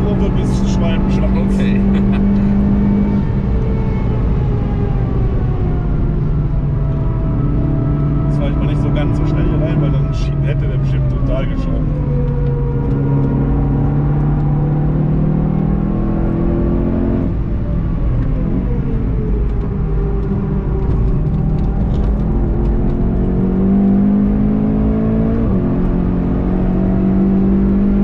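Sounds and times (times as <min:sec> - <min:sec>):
race car engine: 0:00.0 - 0:28.0.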